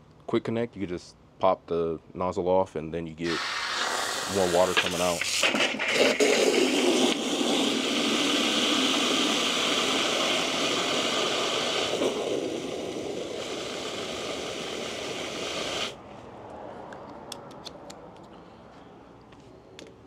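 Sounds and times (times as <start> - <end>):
hose water filling bucket: 3.2 - 16.0.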